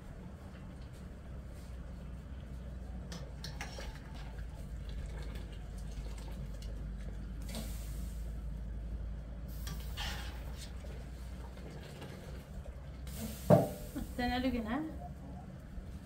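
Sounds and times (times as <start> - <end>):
water running and dripping: 3.1 - 7.9.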